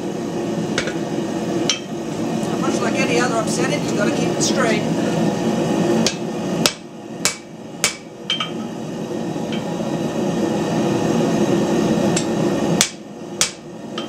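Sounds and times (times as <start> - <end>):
hammer striking hot steel on anvil: 1.7 - 2.0, 6.0 - 8.7, 12.1 - 14.0.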